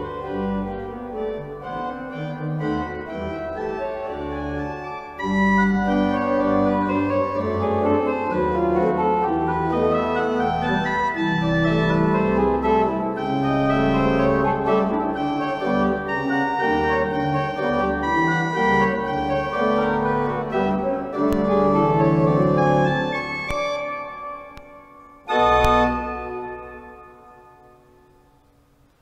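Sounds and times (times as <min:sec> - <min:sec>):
pipe organ chords: 0:00.0 - 0:28.8.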